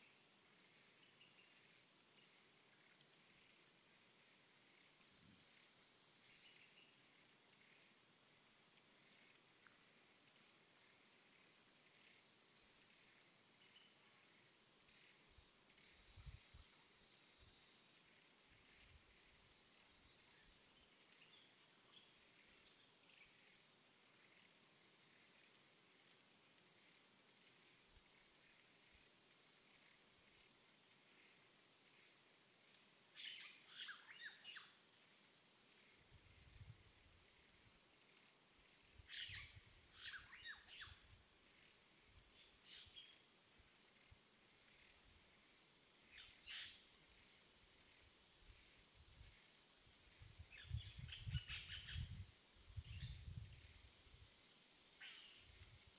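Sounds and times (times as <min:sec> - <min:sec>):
high insect drone: 0:00.0 - 0:55.9.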